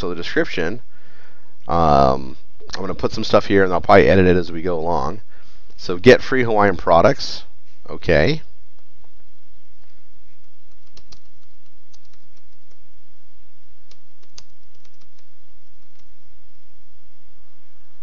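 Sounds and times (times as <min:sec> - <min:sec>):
low background hum: 0:00.0 - 0:18.0
keyboard typing clicks: 0:10.7 - 0:12.8, 0:13.9 - 0:16.1.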